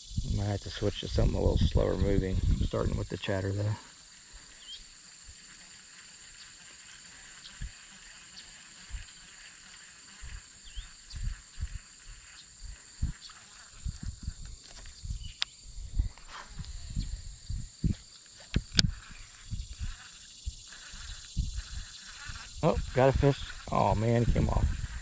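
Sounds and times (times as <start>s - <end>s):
crickets chirping: 0.0s - 25.0s
sharp click: 18.5s - 18.9s.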